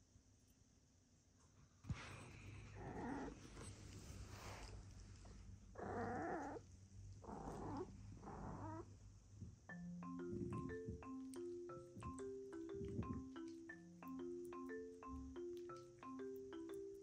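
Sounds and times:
dog whining: 2.7s - 3.7s, 5.7s - 6.6s, 7.2s - 8.9s.

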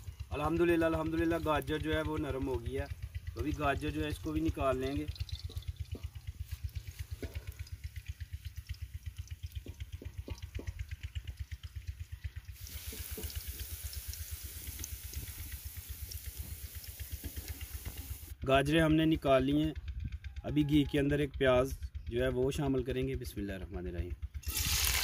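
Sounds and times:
hot oil sizzling: 0.0s - 18.3s, 24.4s - 25.0s.

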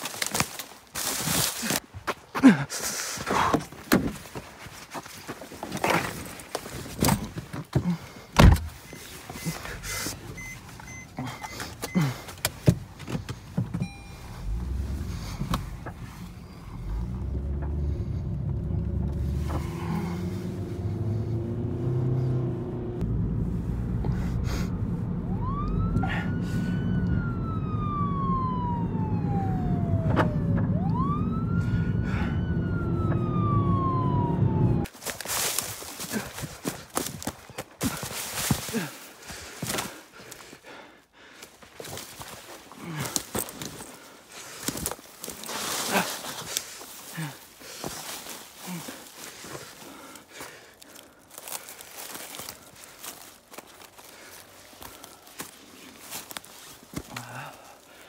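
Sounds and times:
footsteps through dry leaves: 0.0s - 1.9s, 34.9s - 40.5s, 41.6s - 58.0s
car driving rumble: 7.0s - 34.9s
siren wailing: 25.0s - 34.9s.

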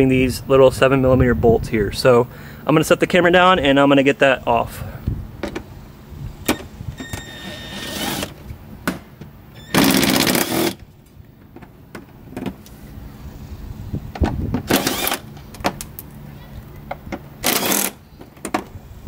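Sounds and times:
power driver whirring: 6.4s - 8.5s, 9.5s - 10.8s, 14.6s - 15.3s, 17.4s - 18.0s.

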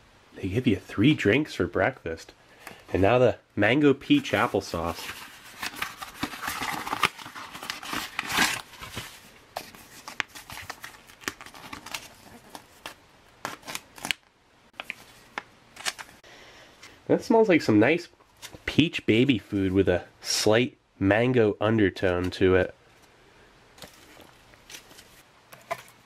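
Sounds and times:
foil pouches crinkling: 4.2s - 14.2s.

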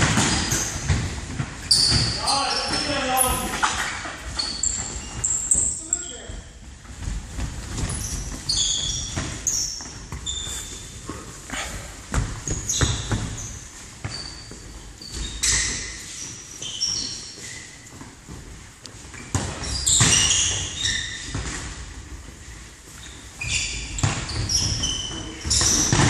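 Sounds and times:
trainers squeaking on floor: 0.0s - 18.1s, 19.0s - 26.0s
ball kicked and bouncing: 12.1s - 15.8s, 23.9s - 26.0s.

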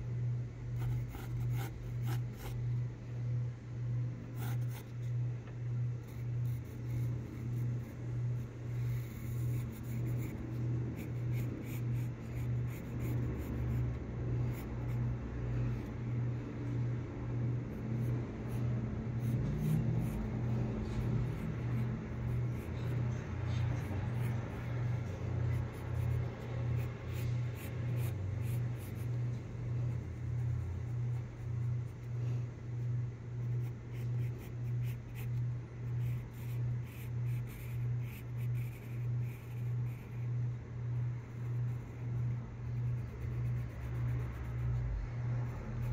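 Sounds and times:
loud throbbing low hum: 0.0s - 45.9s
pencil scratching on paper: 0.8s - 2.6s, 4.3s - 5.0s, 6.0s - 16.0s, 16.6s - 45.9s.

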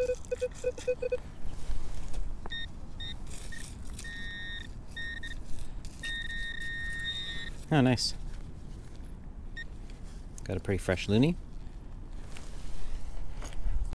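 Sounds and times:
metal detector pinpointer beeping: 0.0s - 1.2s, 2.5s - 7.6s
short lower beeps: 0.0s - 1.2s, 4.0s - 5.4s, 6.0s - 7.6s.

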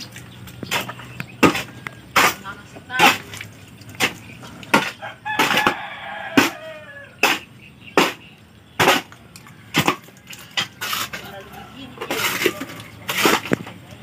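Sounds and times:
cement scraping in a basin: 0.0s - 14.0s
rooster crowing: 4.9s - 7.2s.

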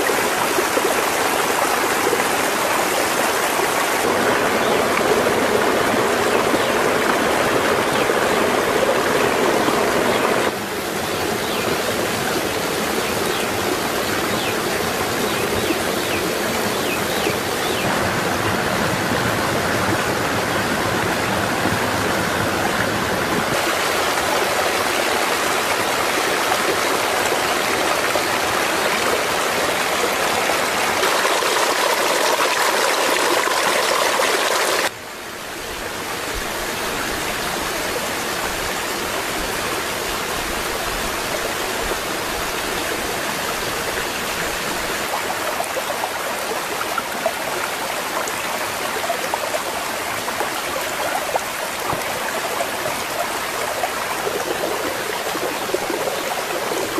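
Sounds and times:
stream rushing and splashing: 0.0s - 56.9s
water pouring from a pipe spout: 23.6s - 34.9s, 44.4s - 56.9s.

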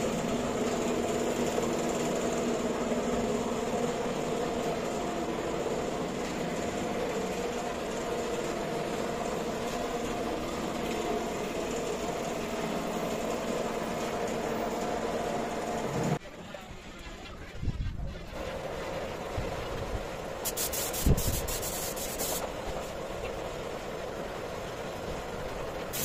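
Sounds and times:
machine motor humming: 0.0s - 16.2s.

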